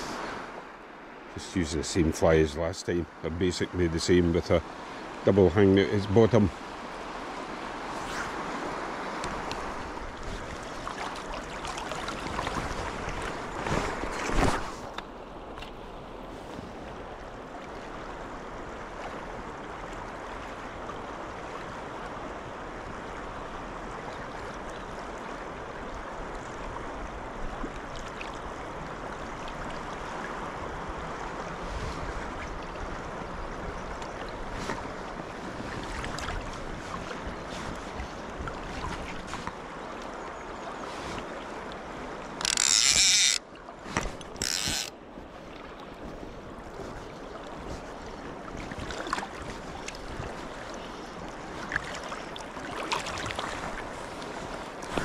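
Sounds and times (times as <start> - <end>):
river rushing: 0.0 - 16.1, 34.3 - 46.7.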